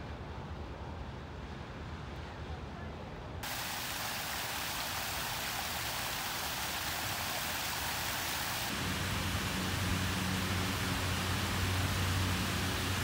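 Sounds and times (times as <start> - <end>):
fountain water splashing: 3.4 - 13.0.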